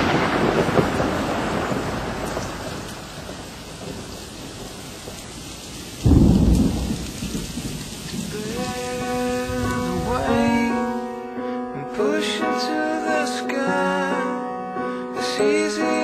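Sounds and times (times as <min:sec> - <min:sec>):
loud thunderclap: 0:00.0 - 0:05.2, 0:06.0 - 0:10.9
thunder rumble: 0:00.0 - 0:11.1
steady rain: 0:00.0 - 0:11.3
music: 0:08.3 - 0:16.0.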